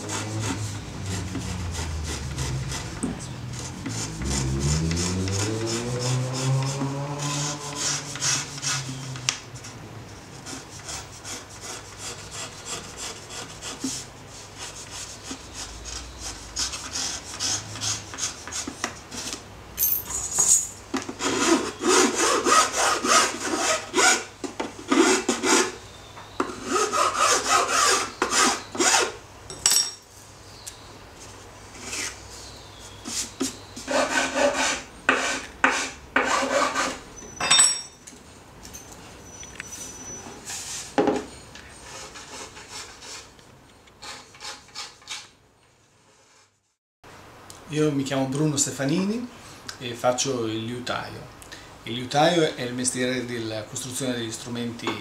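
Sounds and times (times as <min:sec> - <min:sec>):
hand tool rasping on wood: 0:00.0 - 0:09.2, 0:10.4 - 0:14.0, 0:21.2 - 0:24.2, 0:26.6 - 0:29.1, 0:33.8 - 0:37.0.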